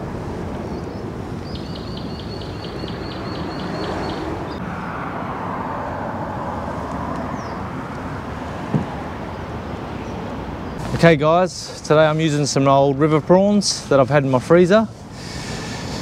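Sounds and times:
road traffic rumble overhead: 0.0s - 16.0s.

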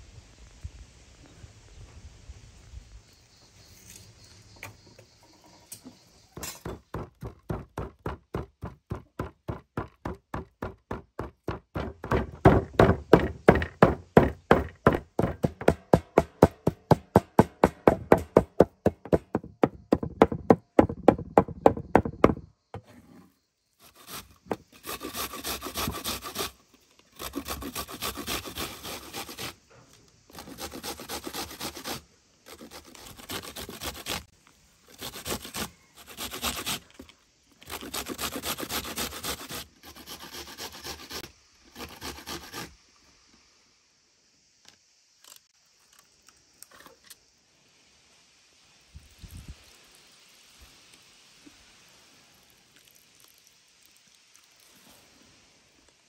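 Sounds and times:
cleaver chopping meat on wood: 6.6s - 22.4s.

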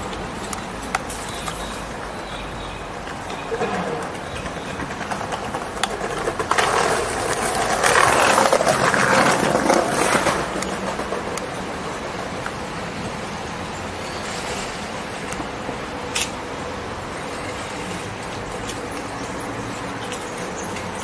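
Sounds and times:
passing city traffic: 0.0s - 21.0s.

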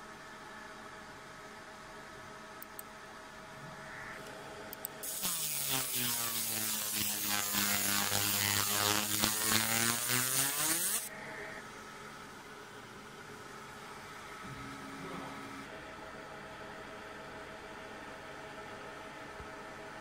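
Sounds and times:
laser marking hiss and buzz: 5.0s - 11.1s.

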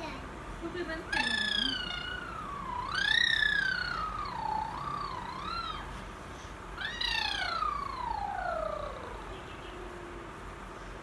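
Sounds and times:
toddler girl wordless calls: 1.0s - 6.0s, 6.8s - 10.4s.

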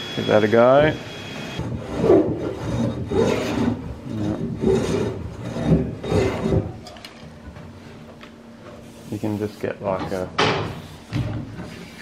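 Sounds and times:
hand plane rasping on wood: 1.6s - 6.7s.

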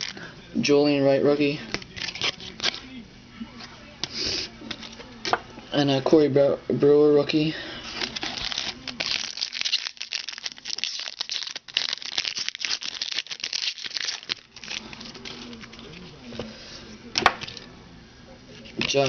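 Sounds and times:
foil wrapper crinkling: 0.0s - 0.3s, 1.7s - 2.8s, 7.8s - 16.1s.

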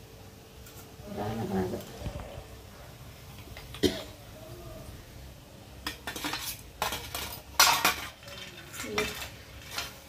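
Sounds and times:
metal skimmer clattering on utensils: 5.8s - 10.0s.

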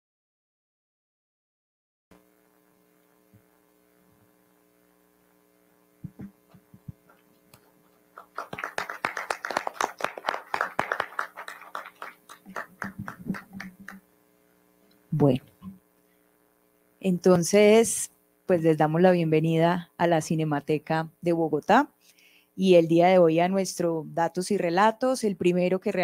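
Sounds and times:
electrical mains hum: 2.2s - 26.0s
dull thumps: 6.0s - 7.0s
audience clapping: 8.1s - 14.0s.

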